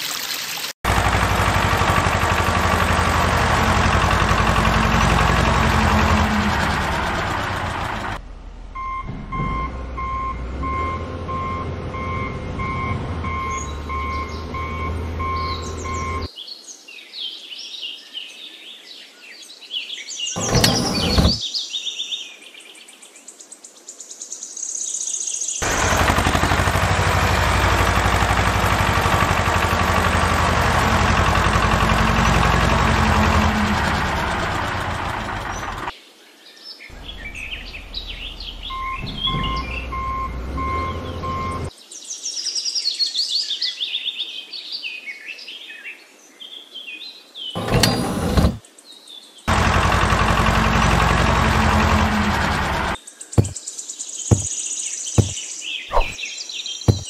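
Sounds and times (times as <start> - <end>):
birds chirping: 13.3 - 16.6, 25.6 - 36.0, 36.7 - 42.2, 47.5 - 57.0.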